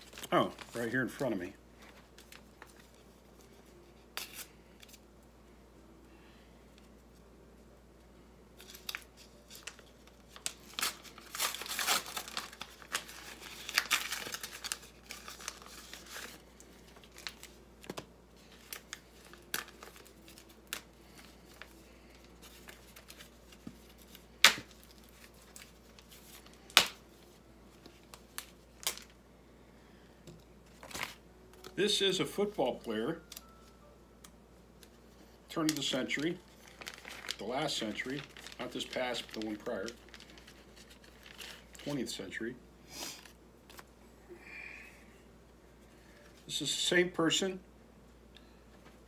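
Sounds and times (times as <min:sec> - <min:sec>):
paper and plastic rustling: 0:00.0 - 0:05.0, 0:08.6 - 0:29.2, 0:30.6 - 0:33.8, 0:34.8 - 0:42.4
paper envelope tearing: 0:08.6 - 0:17.6, 0:35.6 - 0:42.0.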